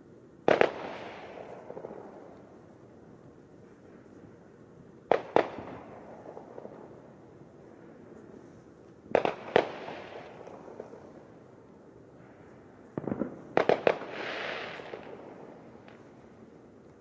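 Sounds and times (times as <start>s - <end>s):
fireworks bangs: 0.4s - 2.4s, 9.1s - 11.0s, 12.9s - 16.2s.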